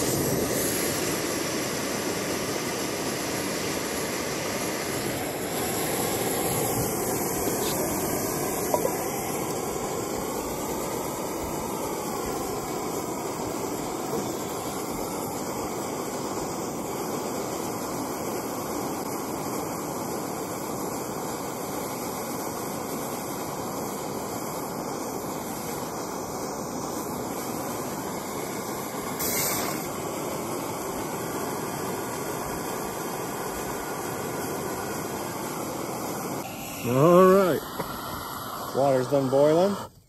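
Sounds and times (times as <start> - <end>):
gas stove burning: 0.0 - 40.0
sharp hiss: 0.0 - 40.0.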